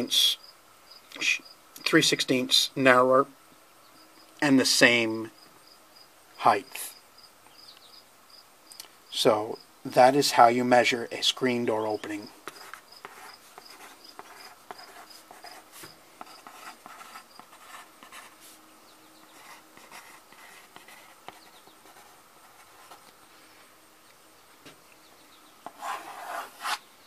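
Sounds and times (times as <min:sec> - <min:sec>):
high regular chirping: 0:12.0 - 0:23.0
pencil writing on paper: 0:12.4 - 0:18.6, 0:19.3 - 0:23.0, 0:25.6 - 0:26.8.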